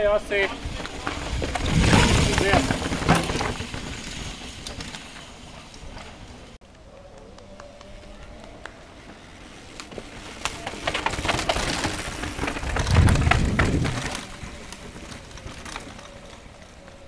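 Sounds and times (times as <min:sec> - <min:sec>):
mountain bike rattling over stones: 0:00.0 - 0:06.6, 0:08.0 - 0:17.0.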